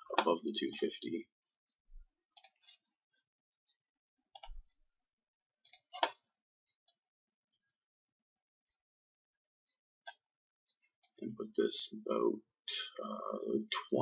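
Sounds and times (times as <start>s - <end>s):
computer mouse clicking: 2.4s - 2.6s, 4.4s - 4.6s, 5.6s - 6.2s.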